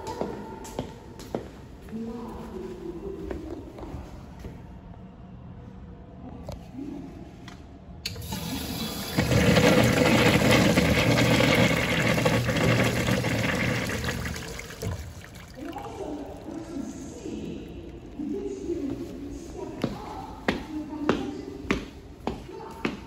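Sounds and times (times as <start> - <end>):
urinal flushing: 8.0 - 18.4.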